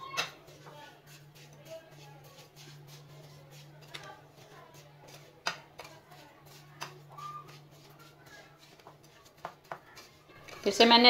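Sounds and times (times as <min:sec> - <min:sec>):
metal spoon stirring in bowl: 0:00.0 - 0:11.0.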